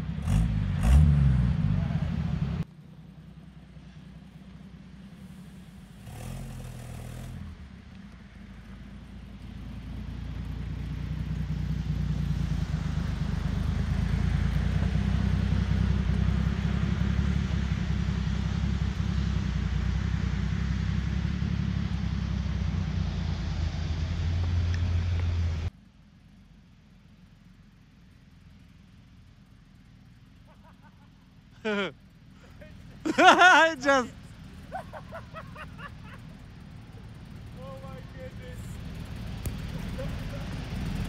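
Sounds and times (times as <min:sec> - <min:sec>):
hiss: 0:05.1 - 0:07.2
truck engine running under load: 0:33.9 - 0:41.0.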